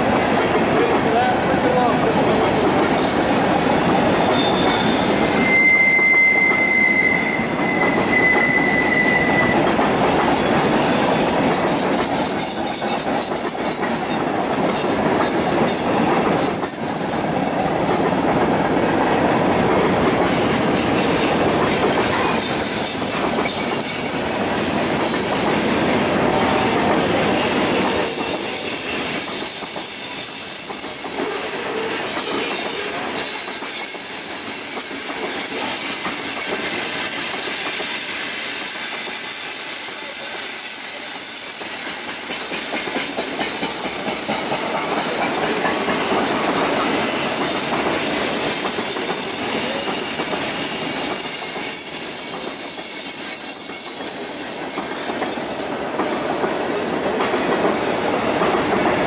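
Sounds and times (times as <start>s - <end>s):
train wheels rolling on rails: 0.0s - 59.0s
high wheel squeal: 4.1s - 17.4s, 26.4s - 42.1s, 46.8s - 56.4s.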